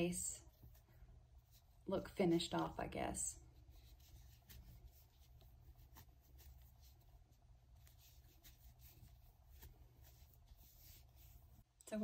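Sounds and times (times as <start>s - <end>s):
crochet hook rustling cord: 0.0s - 11.7s.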